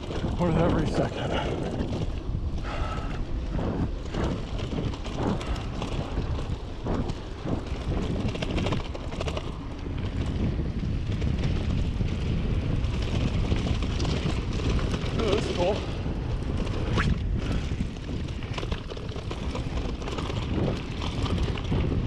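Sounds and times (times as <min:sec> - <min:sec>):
bike tyres rolling on dirt: 0:00.0 - 0:22.0
wind buffeting microphone: 0:00.0 - 0:22.0.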